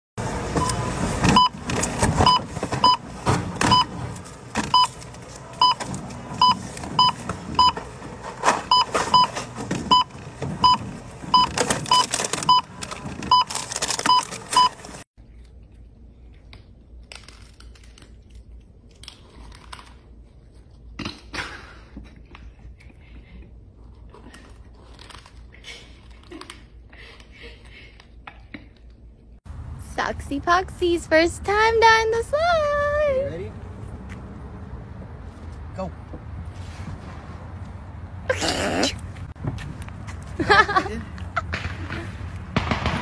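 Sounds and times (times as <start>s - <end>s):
clatter of goods handled: 1.0s - 15.0s.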